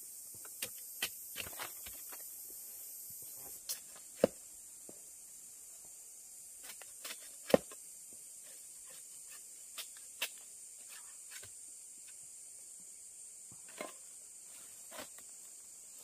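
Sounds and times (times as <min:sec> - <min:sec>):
high insect drone: 0:00.0 - 0:16.0
machete chopping into trunk: 0:06.7 - 0:07.8.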